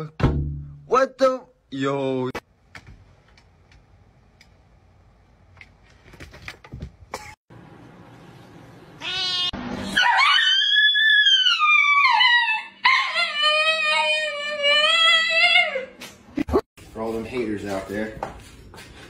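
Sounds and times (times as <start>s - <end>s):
cat yowling: 9.0s - 15.9s.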